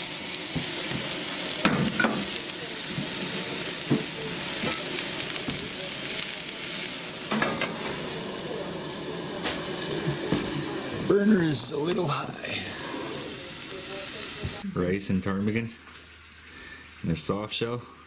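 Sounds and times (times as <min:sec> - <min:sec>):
meat sizzling in oil: 0:00.0 - 0:14.6
metal cookware clinking: 0:07.3 - 0:08.0.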